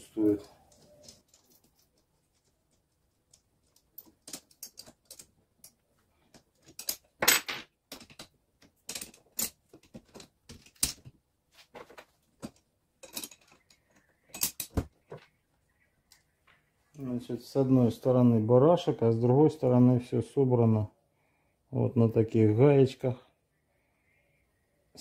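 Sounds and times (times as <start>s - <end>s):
metal tool parts clicking and knocking: 3.3s - 11.1s, 12.4s - 14.9s.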